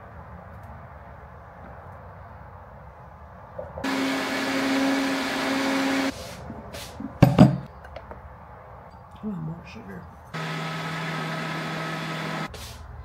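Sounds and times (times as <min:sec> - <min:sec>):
blender motor hum: 0:03.8 - 0:06.1, 0:10.4 - 0:12.5.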